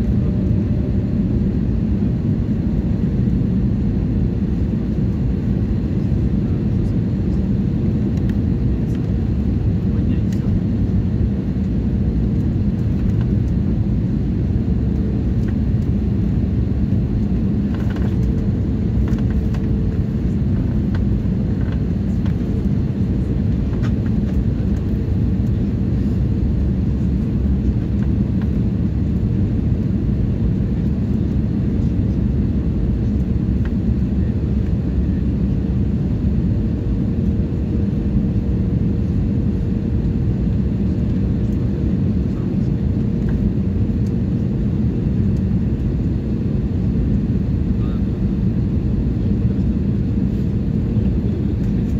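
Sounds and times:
jet engine cabin rumble: 0.0s - 51.9s.

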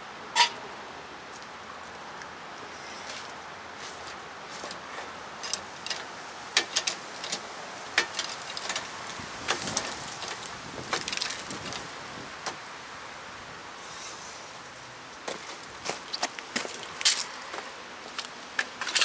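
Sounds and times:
steady background hiss: 0.0s - 19.0s
sharp clicks and knocks: 5.4s - 12.6s.

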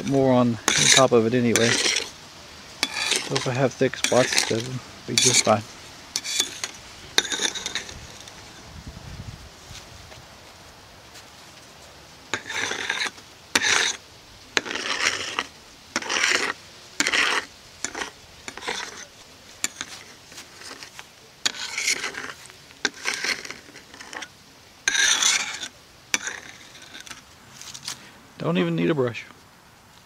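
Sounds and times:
plastic spreader scraping on glass: 0.0s - 2.1s, 2.8s - 5.6s, 6.2s - 8.6s, 12.3s - 14.0s, 14.6s - 24.3s, 24.9s - 27.2s.

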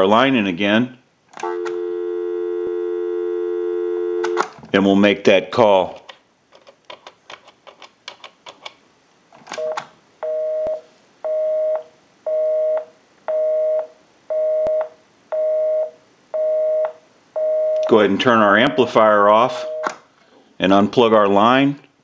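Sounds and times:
telephone busy signal: 1.4s - 4.4s, 9.6s - 17.8s.

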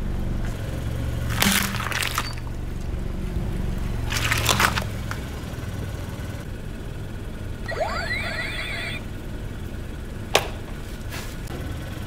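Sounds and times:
car engine at low revs: 0.0s - 12.0s
tyre crunching objects: 1.2s - 2.6s, 3.9s - 5.3s.

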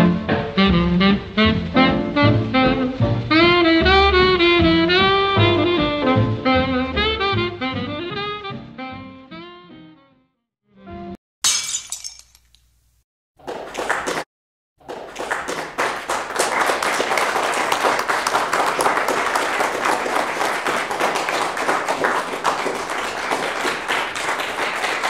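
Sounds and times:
crowd applause: 13.4s - 14.2s, 14.8s - 25.0s.

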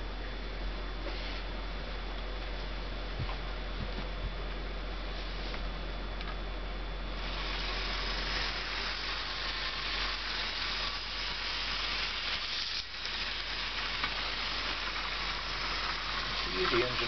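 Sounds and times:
model train motor whirring: 7.2s - 17.0s.

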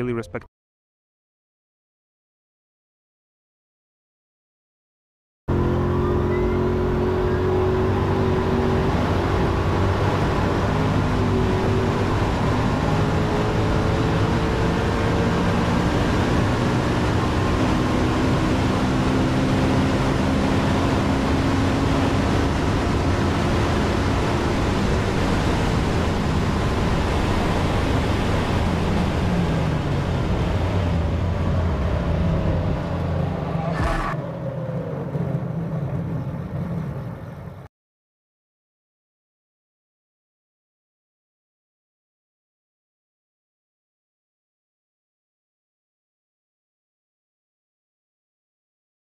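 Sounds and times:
car drivetrain hum: 5.5s - 37.6s
wind and road noise: 5.5s - 37.7s.

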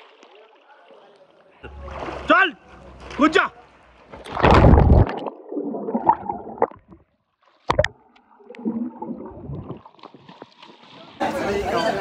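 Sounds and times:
underwater bubbling and gurgling: 4.2s - 10.8s.

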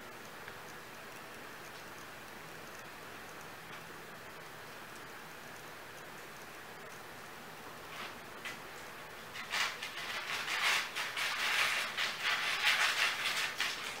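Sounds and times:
kittens scrabbling and rustling: 9.3s - 14.0s.

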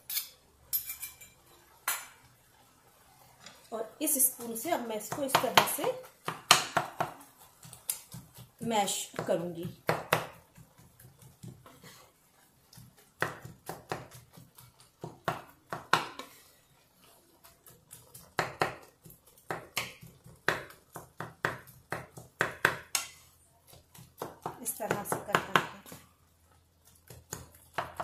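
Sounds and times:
wooden spatula scraping a frying pan: 10.4s - 13.2s, 16.1s - 20.8s.

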